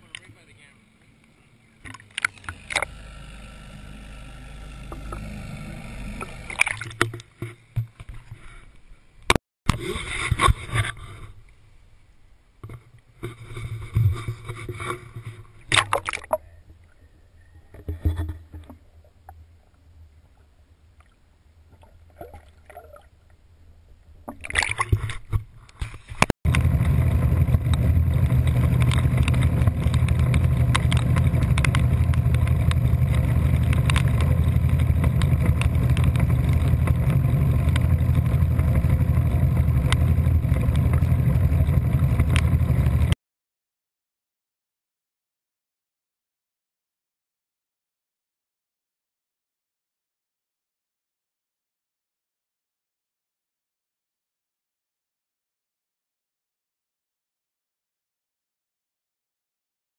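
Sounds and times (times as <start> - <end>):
outboard motor running: 0.0 - 9.1, 24.6 - 43.2
water splashing against boat: 6.1 - 8.7, 12.6 - 16.8, 21.0 - 23.4, 24.0 - 43.2.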